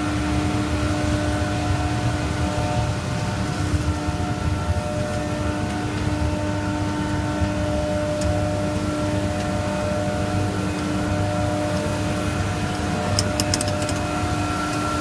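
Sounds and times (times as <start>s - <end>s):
machine hum with whining tones: 0.0s - 15.0s.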